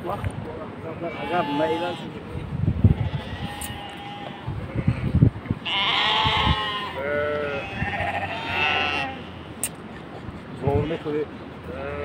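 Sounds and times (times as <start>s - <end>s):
sheep bleating: 1.1s - 2.1s, 2.9s - 4.6s, 5.6s - 9.6s.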